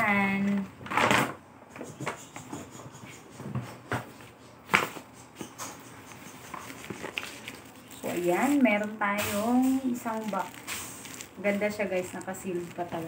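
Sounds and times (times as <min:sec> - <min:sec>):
paper bag rustling and crinkling: 0:06.4 - 0:13.0.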